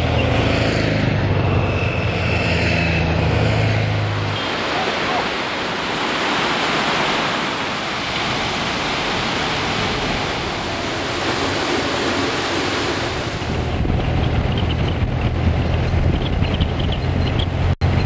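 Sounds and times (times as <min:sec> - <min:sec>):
motorcycle engine drone: 0:00.0 - 0:05.2, 0:13.1 - 0:18.0
waterfall and stream roaring: 0:00.0 - 0:13.8.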